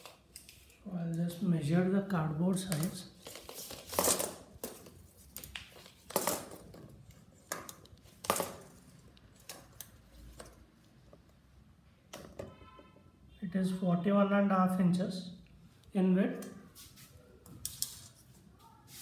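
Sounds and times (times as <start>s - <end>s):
tape measure clicks and scrapes: 17.6s - 18.2s.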